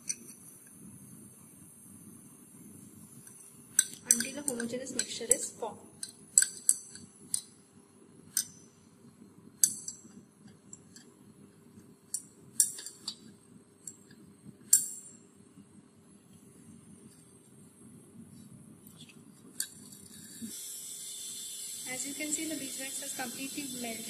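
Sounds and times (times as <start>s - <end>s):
faint steady hum: 0.0s - 24.0s
glass rod clinking against beaker: 3.8s - 7.5s, 8.3s - 8.7s, 9.6s - 10.1s, 12.1s - 13.3s.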